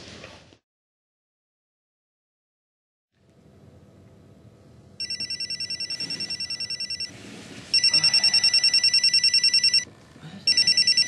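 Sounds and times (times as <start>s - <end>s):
phone ringing electronic trill: 5.0s - 7.1s, 7.7s - 9.9s, 10.5s - 11.0s.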